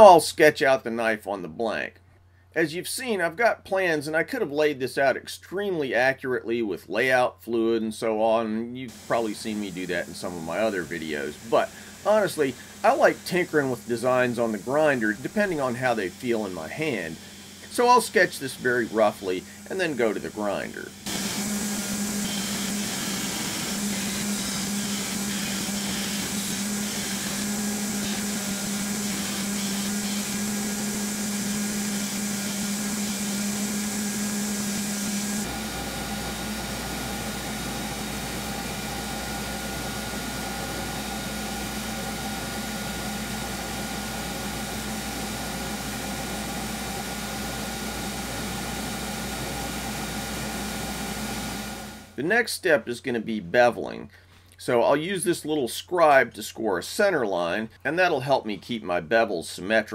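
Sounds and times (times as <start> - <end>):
belt grinder grinding steel: 8.9 - 49.7.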